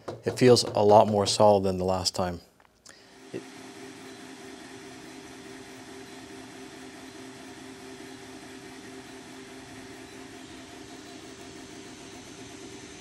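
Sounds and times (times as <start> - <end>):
printer fans whirring: 3.0 - 13.0.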